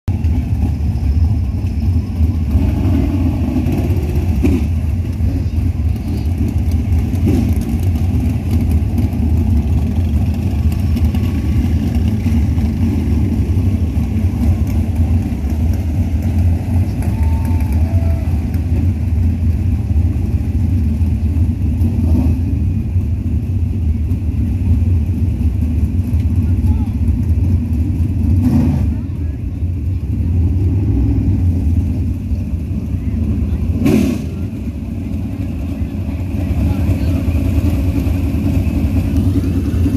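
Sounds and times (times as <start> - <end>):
race car engines rumbling: 0.0 - 39.9.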